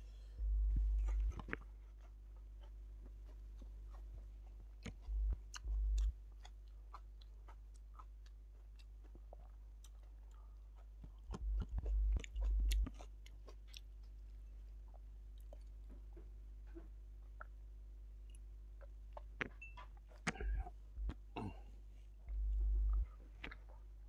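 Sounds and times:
person chewing food: 0.1s - 24.0s
dull deep thuds: 0.4s - 1.6s, 4.9s - 6.1s, 11.3s - 12.8s, 20.3s - 21.5s.

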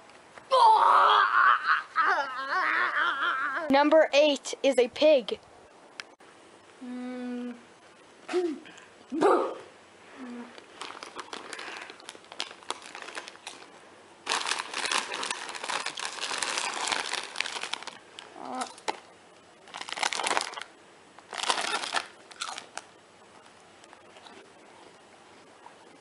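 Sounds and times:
chip bag rustling and crackling: 10.6s - 19.0s, 19.6s - 22.9s.

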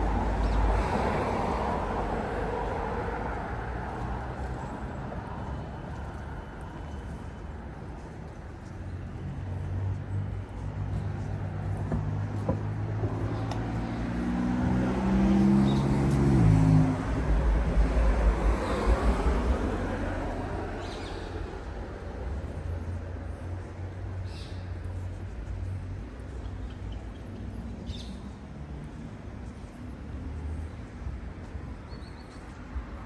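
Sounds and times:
vehicle engine accelerating: 13.2s - 19.4s.

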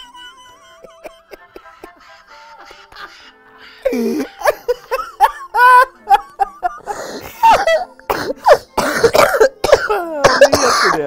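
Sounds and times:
man laughing loudly: 0.0s - 7.9s.

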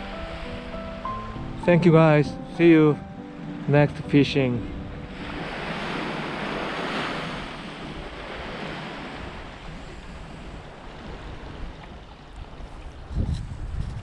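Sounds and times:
surf washing onto beach: 3.7s - 13.2s
wind rumble on microphone: 4.6s - 14.0s.

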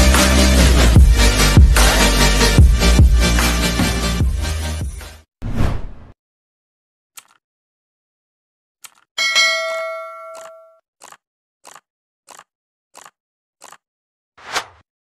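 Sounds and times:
notification bell ding: 9.2s - 10.8s.

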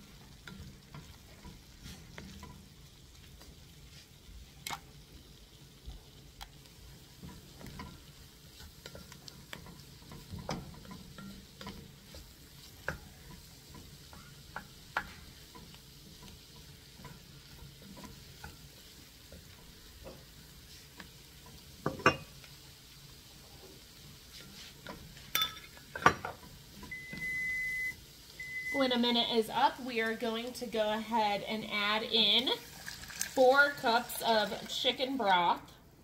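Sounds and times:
wooden spoon stirring vegetables: 0.0s - 27.4s
faint sizzle: 0.0s - 36.0s.

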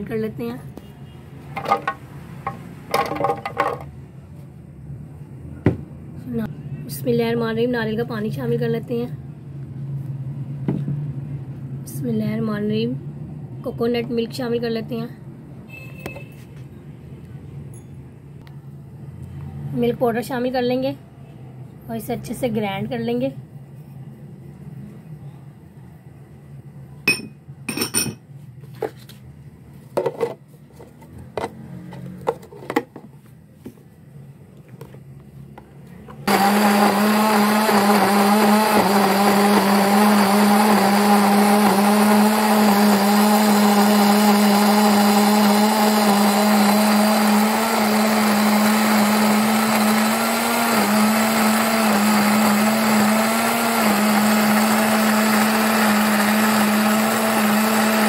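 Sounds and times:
electric blender grinding: 36.2s - 58.0s.

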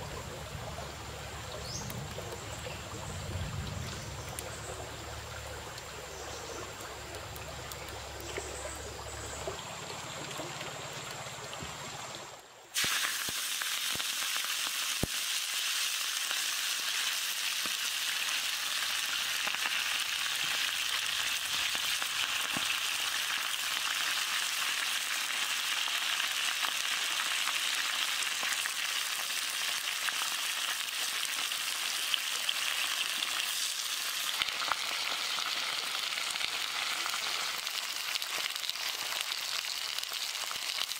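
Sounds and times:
oil trickling into pan: 12.7s - 40.9s
vegetables sizzling in oil: 12.7s - 40.9s.

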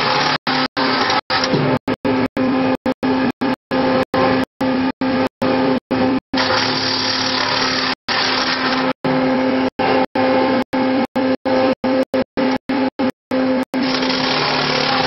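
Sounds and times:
wood planing machine rushing: 0.0s - 1.8s, 5.6s - 11.0s, 13.6s - 15.0s
machine hum: 0.0s - 15.0s.

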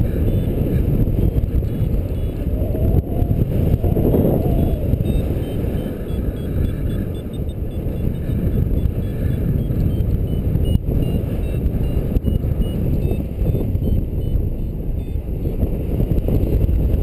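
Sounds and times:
wind buffeting microphone: 0.0s - 17.0s
short electronic beeps: 0.2s - 0.6s, 4.6s - 15.2s.

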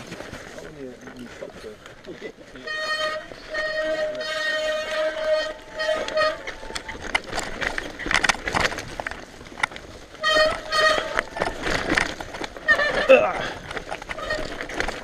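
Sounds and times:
tyres and frame clattering over stones: 0.0s - 15.0s
disc brakes squealing: 2.6s - 7.0s, 12.6s - 13.4s, 14.2s - 14.7s.

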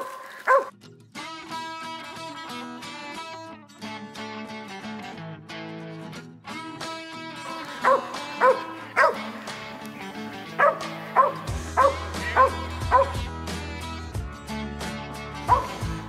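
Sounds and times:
dog barking: 0.0s - 0.7s, 7.8s - 9.4s, 10.5s - 13.2s, 15.5s - 15.9s
guitar background music: 0.0s - 16.0s.

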